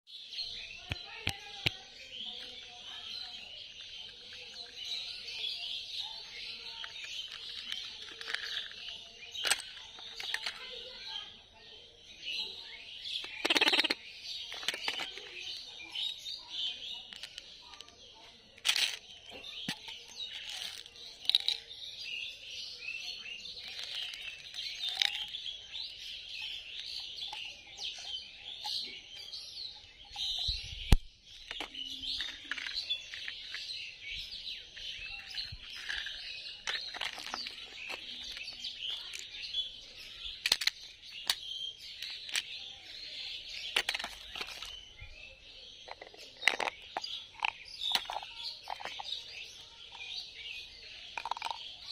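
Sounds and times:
small birds chirping: 0.1 - 51.9.

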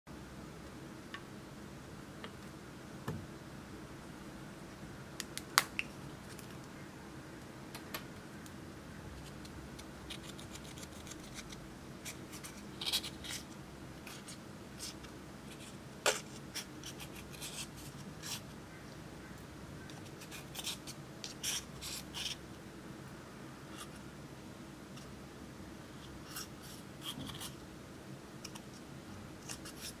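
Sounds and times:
scissors scraping powder: 20.0 - 22.4, 28.4 - 30.0.

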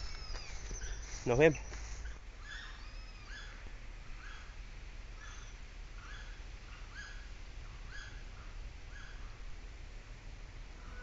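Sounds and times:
animal chirps: 0.0 - 3.6.

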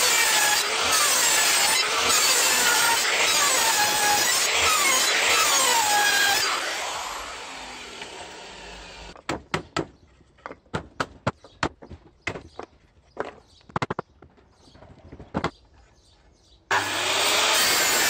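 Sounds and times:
circular saw winding down: 0.3 - 9.2, 16.7 - 18.0.

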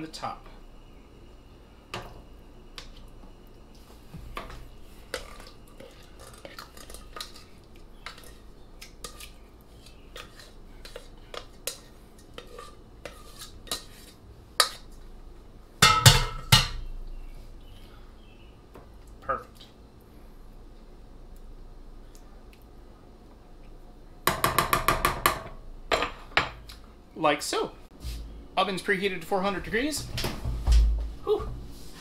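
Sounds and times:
metal spoon scraping a pot: 5.0 - 8.4, 9.0 - 14.9.

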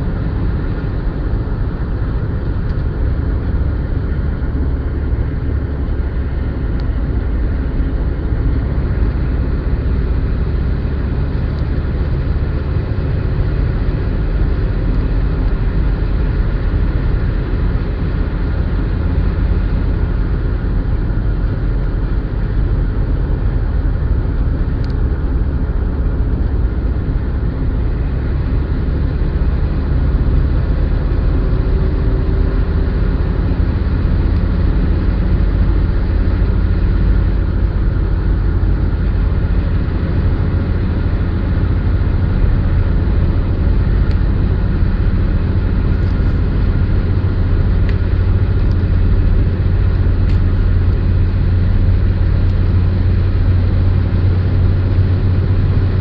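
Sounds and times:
car road noise rumble: 0.0 - 56.0.

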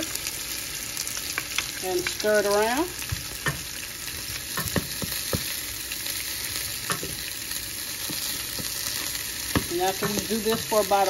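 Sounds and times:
garlic sizzling in hot oil: 0.0 - 11.0
wooden spatula knocking on pan: 4.6 - 5.5, 9.5 - 10.8.

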